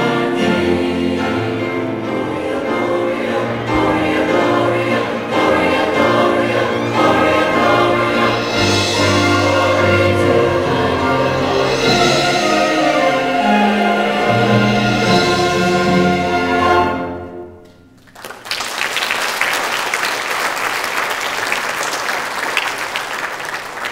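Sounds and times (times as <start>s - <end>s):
choir with orchestra: 0.0s - 17.8s
audience applauding: 18.0s - 23.9s.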